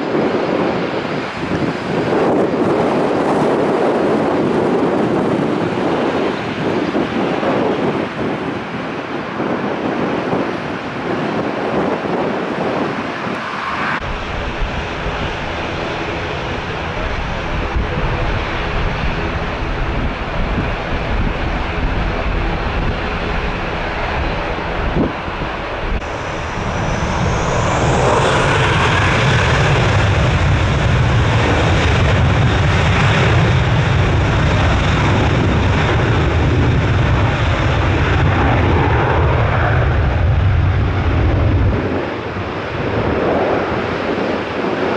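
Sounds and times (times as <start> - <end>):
jet engines spooling up: 12.6 - 17.2, 25.9 - 43.8
rising engine whine: 12.7 - 17.9, 24.6 - 43.6.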